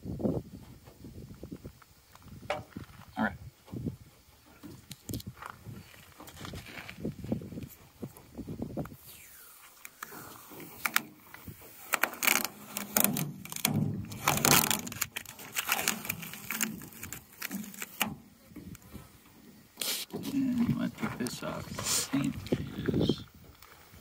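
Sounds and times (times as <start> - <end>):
masking tape peeling off metal: 9.0 - 18.9
tape crackling and tearing: 9.1 - 18.2.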